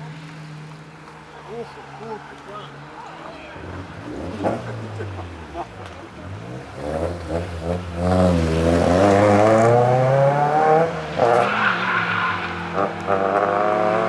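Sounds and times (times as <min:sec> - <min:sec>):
car engine revving: 0:03.5 - 0:14.0.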